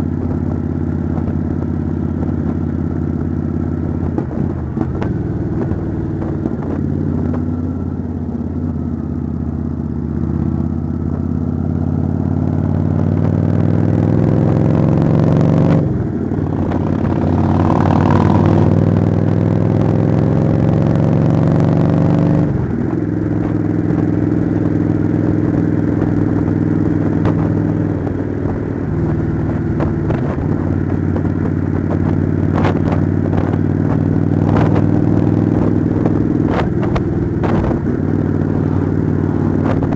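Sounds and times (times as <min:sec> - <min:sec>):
motorcycle engine accelerating: 0:00.0 - 0:39.9
motorcycle gear change: 0:16.3 - 0:19.8.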